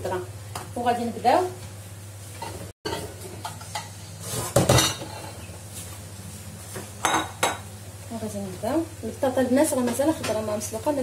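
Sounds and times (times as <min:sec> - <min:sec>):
dishes clinking on countertop: 0:02.4 - 0:05.4, 0:06.8 - 0:07.7.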